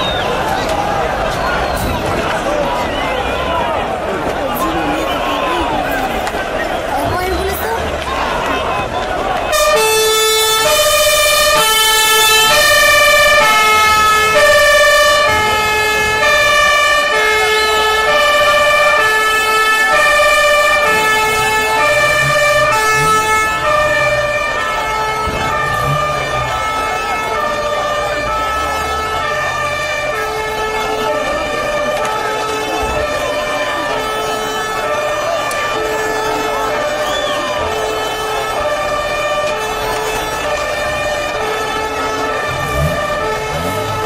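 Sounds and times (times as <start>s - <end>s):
stadium crowd noise: 0.0s - 44.0s
siren stepping between pitches: 9.6s - 44.0s.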